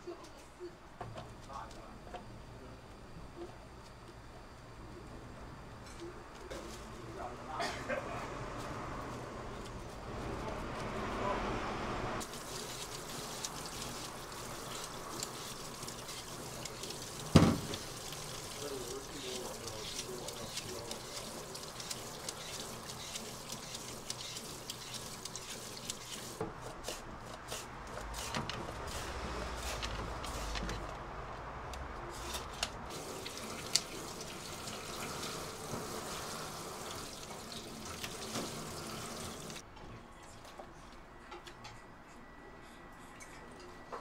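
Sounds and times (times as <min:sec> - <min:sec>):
steady background noise: 0:00.0 - 0:44.0
liquid sounds: 0:12.2 - 0:27.0.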